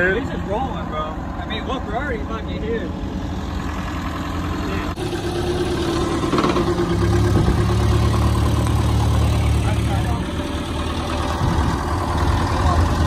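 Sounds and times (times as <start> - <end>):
deep engine rumble: 0.0 - 13.0
forklift engine humming: 0.0 - 13.0.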